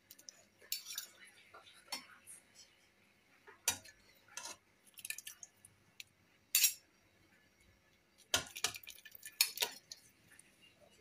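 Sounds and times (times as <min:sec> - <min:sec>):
metal spoon clinking on pots: 0:00.2 - 0:01.2, 0:06.5 - 0:06.8, 0:08.3 - 0:10.0.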